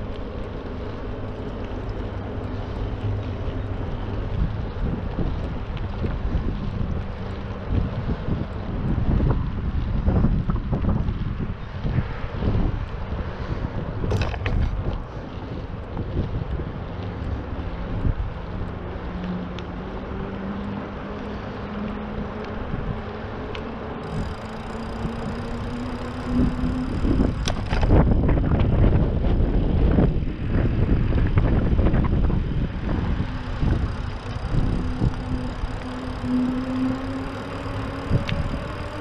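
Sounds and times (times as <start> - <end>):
outdoor noise: 0.0 - 39.0
vehicle engine hum rising: 0.0 - 39.0
low rumble with bumps and knocks: 26.4 - 35.8.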